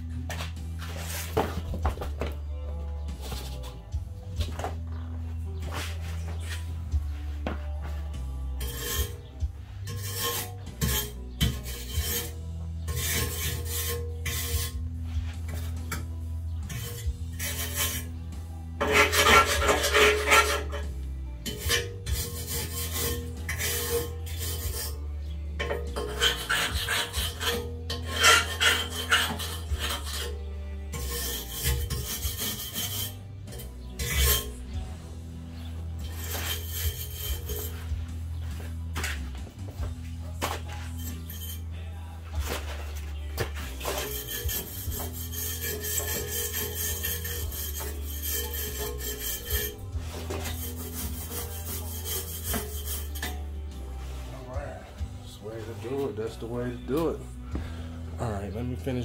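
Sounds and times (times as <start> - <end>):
brush scrubbing rusty metal: 0.8 - 1.7, 8.6 - 18.2, 18.8 - 25.0, 25.6 - 34.8, 35.5 - 39.2, 40.4 - 41.7, 42.4 - 54.6.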